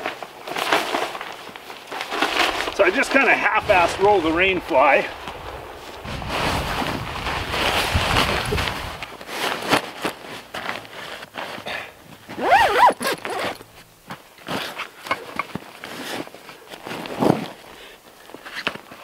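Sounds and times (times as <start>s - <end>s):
nylon bag rustling: 0.0s - 19.0s
zipper pulled closed: 12.3s - 13.7s.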